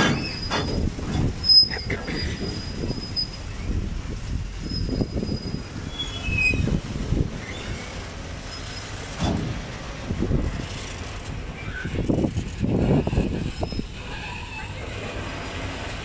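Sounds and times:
high wheel squeals: 0.0s - 0.8s, 1.4s - 3.8s, 4.6s - 6.8s, 11.6s - 12.1s, 12.8s - 15.0s
heavy wagon clunks: 0.0s - 2.9s
train low rumble: 0.0s - 16.0s.

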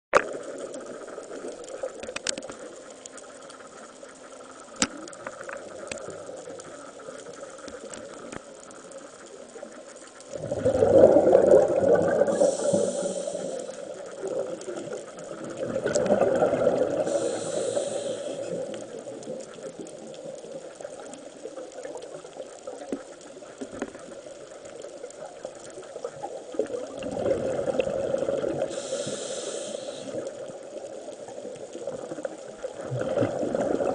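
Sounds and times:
faint clicks: 0.2s - 10.4s, 11.9s - 33.2s
low underwater hiss: 0.2s - 33.9s
exhaled bubbles gurgling underwater: 4.7s - 33.9s
regulator hiss: 12.1s - 14.4s, 16.9s - 19.0s, 28.6s - 30.5s.

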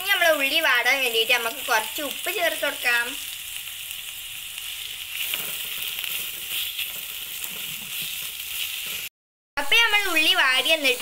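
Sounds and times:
onions sizzling in a pan: 0.0s - 11.0s
spatula stirring and scraping: 4.6s - 9.1s.

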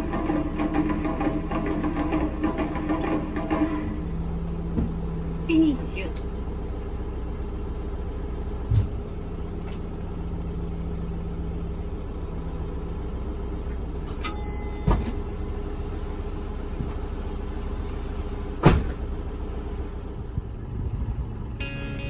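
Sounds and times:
diesel engine running: 0.0s - 22.0s
sharp mechanical clunks: 18.6s - 19.0s.

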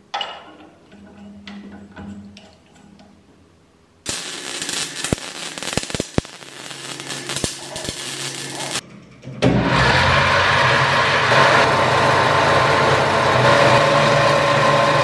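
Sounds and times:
welder crackling and spitting: 4.0s - 8.8s.

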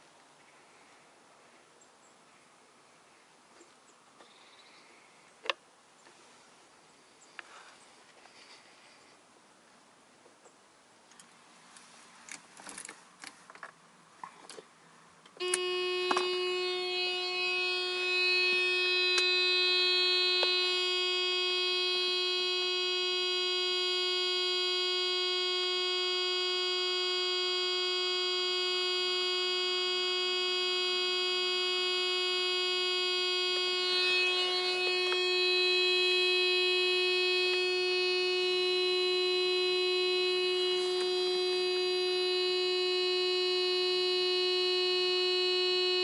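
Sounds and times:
high electronic buzzing tone: 15.4s - 46.0s.

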